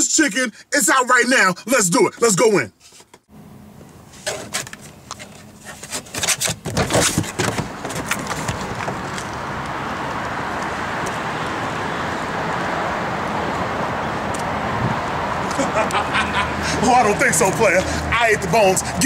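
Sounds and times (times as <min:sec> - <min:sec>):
outdoor street noise: 0:00.0 - 0:19.0
person climbing out of car: 0:02.8 - 0:09.4
car door opening: 0:04.2 - 0:09.3.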